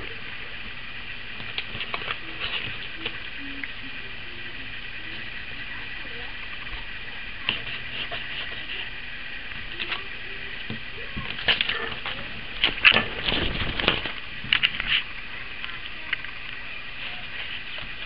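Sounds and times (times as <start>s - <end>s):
steady background hiss: 0.0s - 18.0s
paper rustling: 1.4s - 3.2s, 7.4s - 8.9s, 11.2s - 15.1s
pencil scratching on paper: 7.5s - 8.9s.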